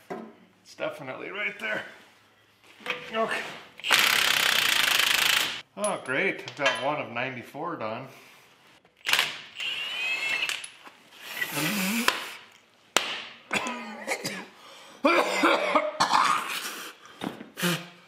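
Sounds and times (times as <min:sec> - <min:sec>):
man coughing: 0:13.5 - 0:16.8.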